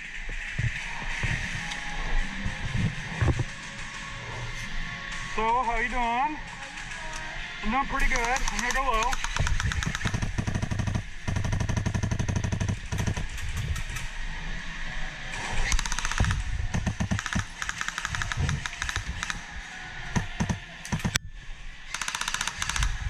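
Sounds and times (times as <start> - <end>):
rapid airsoft gunfire: 7.6 - 13.4, 15.6 - 19.5, 21.9 - 23.0.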